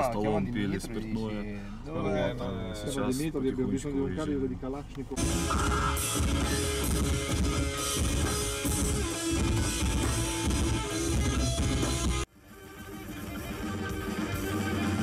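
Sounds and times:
live metal band playing: 5.2s - 15.0s.

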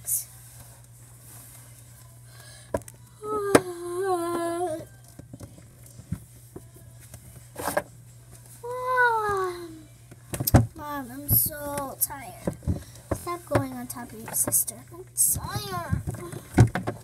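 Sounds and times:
girl humming: 3.2s - 5.0s, 8.6s - 9.9s.

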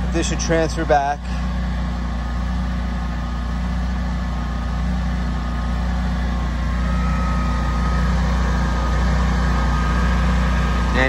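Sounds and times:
generator engine humming: 0.0s - 11.0s
faint high whine: 6.4s - 11.0s.

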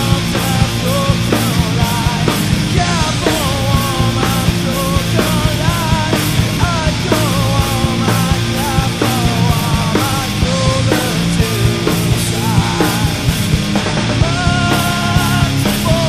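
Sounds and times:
distorted heavy metal band: 0.0s - 16.0s
pitch-bending melodic guitar line: 0.0s - 16.0s.

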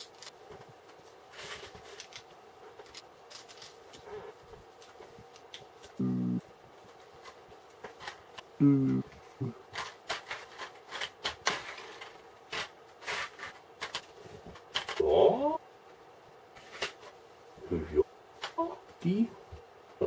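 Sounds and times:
person humming: 5.9s - 6.5s, 8.6s - 9.6s, 17.6s - 18.0s.

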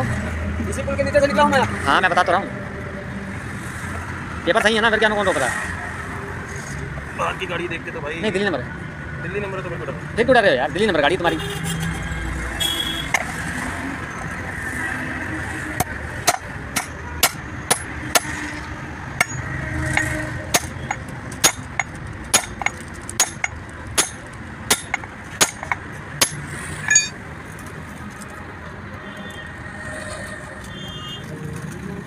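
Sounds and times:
hammer striking metal: 15.8s - 18.4s, 19.2s - 27.2s.

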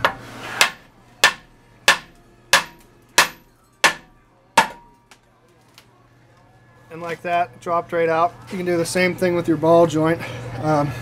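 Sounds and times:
hammer striking steel: 0.0s - 5.0s.

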